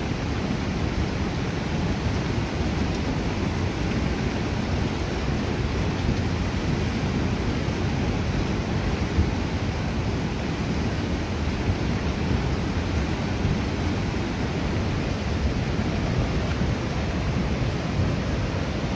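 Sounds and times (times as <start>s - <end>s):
floodwater rushing and churning: 0.0s - 18.9s.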